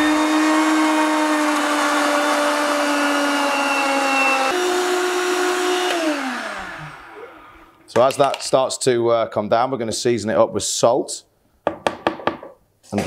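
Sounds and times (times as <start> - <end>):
blender motor running: 0.0 - 7.9.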